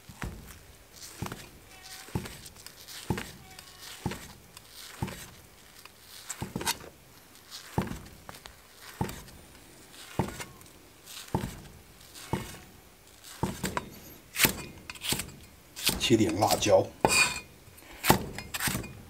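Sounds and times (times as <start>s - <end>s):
cleaver slicing on chopping block: 2.1s - 5.4s, 11.2s - 12.7s, 13.3s - 16.7s, 18.0s - 18.9s.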